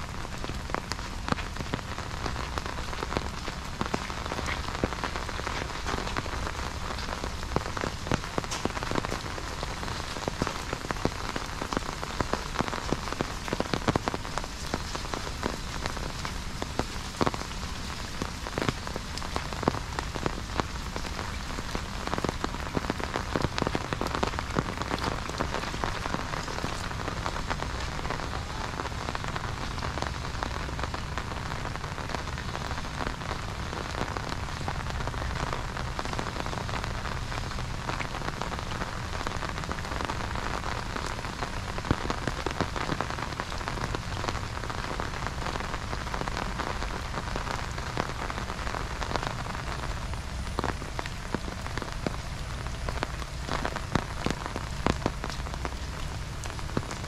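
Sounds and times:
raindrops tapping on umbrella: 0.0s - 57.0s
steady rain: 0.0s - 57.0s.

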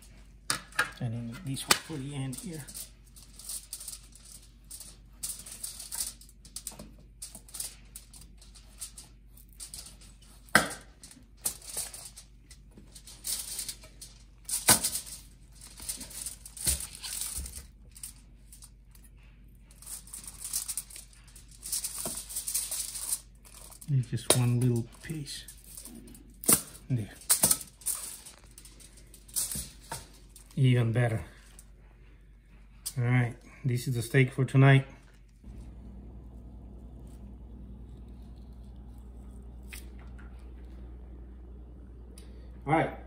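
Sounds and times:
meat rustling on foil: 1.5s - 18.8s, 19.7s - 31.7s.

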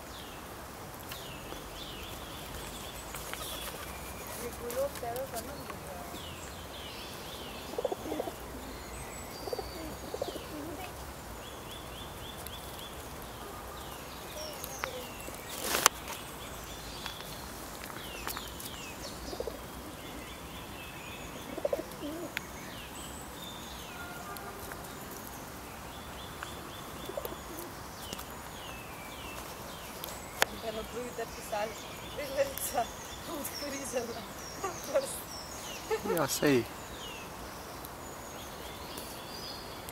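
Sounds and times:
songbirds chirping and trilling: 0.0s - 39.9s
pigeon cooing: 7.6s - 11.0s, 19.3s - 20.3s, 21.4s - 22.4s, 27.0s - 27.8s.

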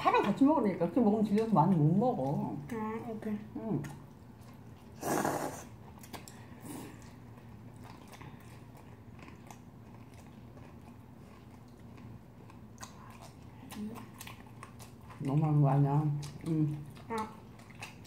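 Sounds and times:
wet chewing: 1.0s - 18.0s
slurping noodles: 5.0s - 5.8s.

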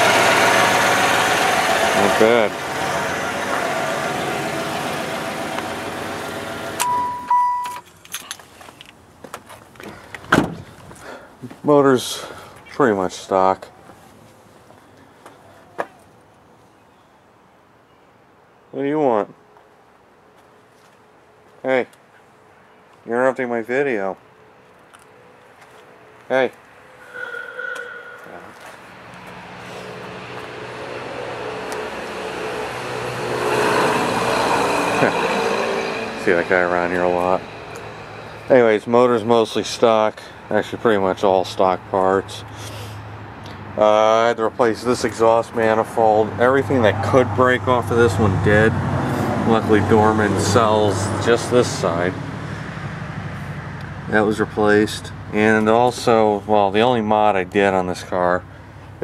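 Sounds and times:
car engine idling: 0.0s - 7.6s, 34.7s - 40.8s
electronic warning chime: 6.8s - 7.8s.

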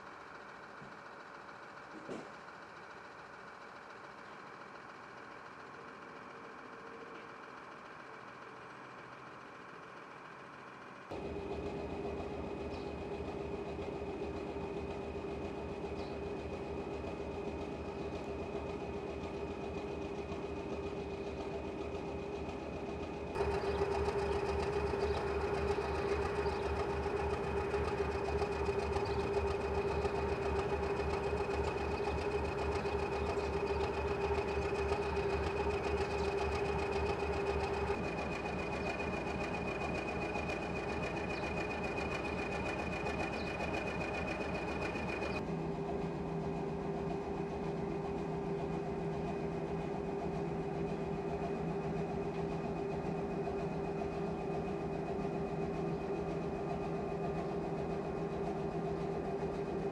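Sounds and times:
constant whine: 0.0s - 59.9s
diesel engine rhythmic thumping: 0.0s - 59.9s.

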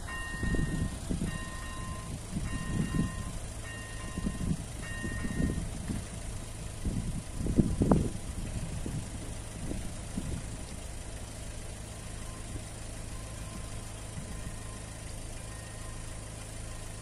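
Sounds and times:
level crossing bell ringing: 0.0s - 5.6s.

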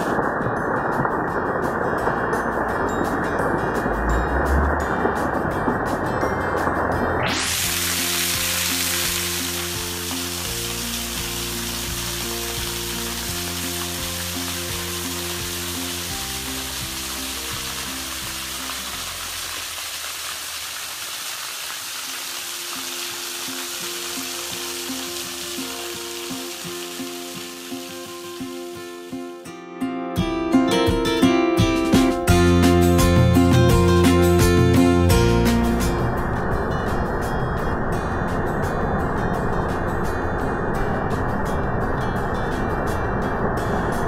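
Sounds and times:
background music of held chords: 0.0s - 19.5s, 23.3s - 44.0s
waterfall onto rock: 0.0s - 29.2s.

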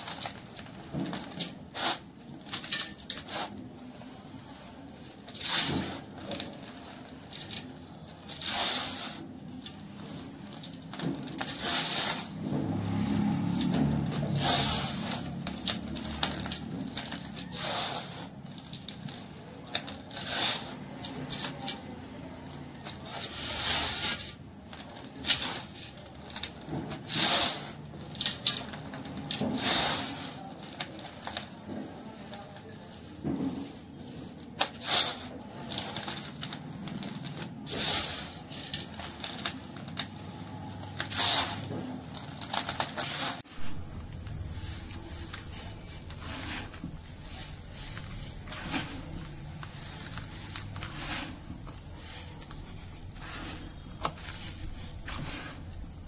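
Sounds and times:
sand pouring onto basin: 42.5s - 56.0s
sand rustling and crunching: 42.9s - 56.0s.

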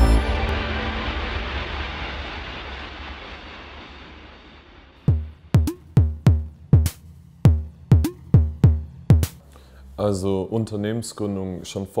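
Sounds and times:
rumbling heavy impact hit: 0.0s - 9.2s
deep drum-machine kicks: 5.0s - 9.4s.

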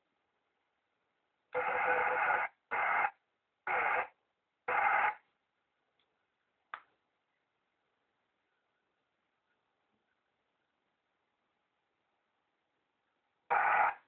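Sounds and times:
loudspeaker static bursts: 1.6s - 5.2s, 13.5s - 14.0s.

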